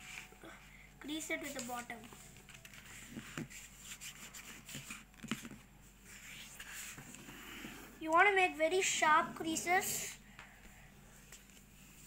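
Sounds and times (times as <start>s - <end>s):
fingers rubbing paper: 2.8s - 5.1s.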